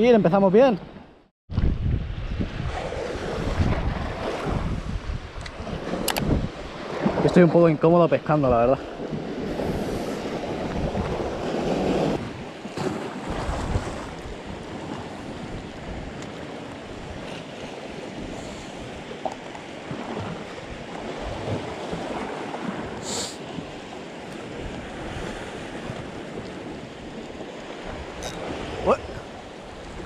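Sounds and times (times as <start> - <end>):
wind buffeting microphone: 0.8 - 30.0
sea washing against rocks: 2.1 - 30.0.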